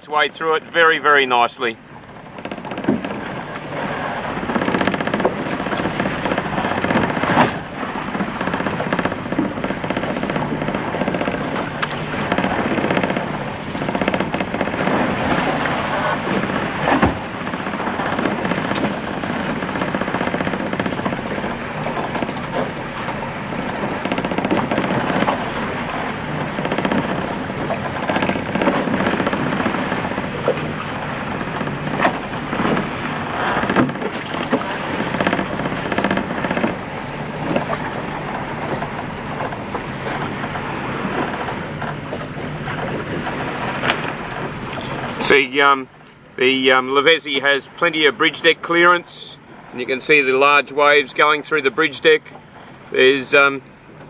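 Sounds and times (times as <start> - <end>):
water rushing along boat hull: 0.0 - 54.0
sharp knocks on hull: 2.2 - 45.2.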